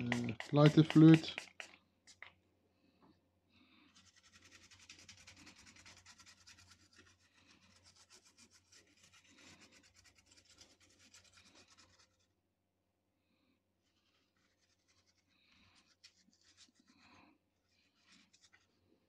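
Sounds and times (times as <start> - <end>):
fast scrubbing strokes: 0.0 - 2.2.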